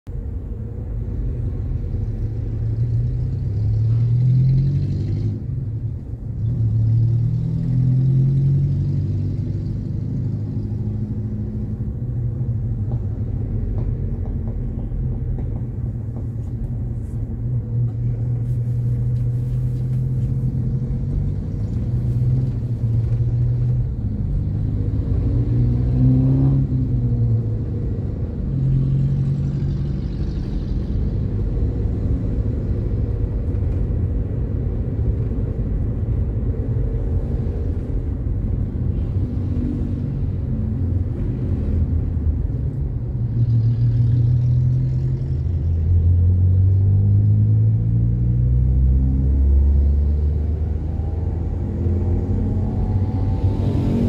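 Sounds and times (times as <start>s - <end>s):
road rumble: 0.0s - 54.0s
car engine accelerating: 17.9s - 54.0s.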